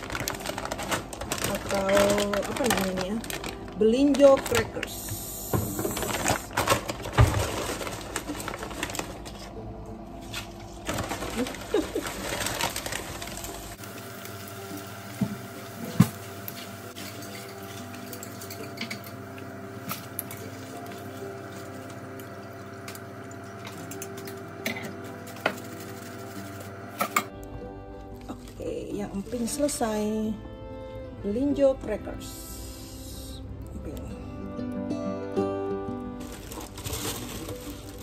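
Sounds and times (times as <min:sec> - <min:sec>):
crackers sizzling in hot oil: 0:00.0 - 0:02.0, 0:12.6 - 0:27.0.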